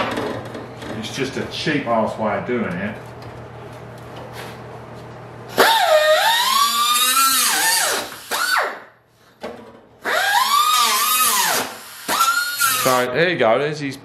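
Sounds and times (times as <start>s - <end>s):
grinder cutting sheet steel: 5.6s - 8.8s, 10.0s - 13.1s.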